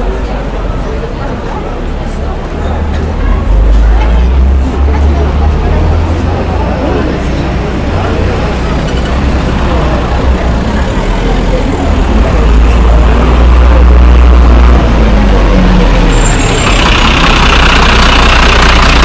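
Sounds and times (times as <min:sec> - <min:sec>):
heavy vehicle low rumble: 0:00.0 - 0:19.0.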